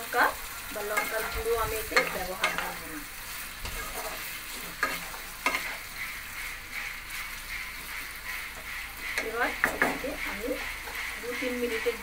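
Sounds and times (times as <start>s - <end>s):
chicken sizzling: 0.0s - 12.0s
wooden spatula stirring in wok: 0.0s - 12.0s
spatula knocking against pan: 7.9s - 12.0s.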